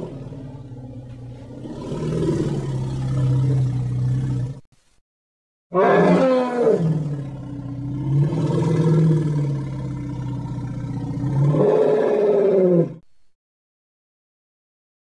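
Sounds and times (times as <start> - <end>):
deep roar sound effect: 0.0 - 4.6, 5.8 - 13.0.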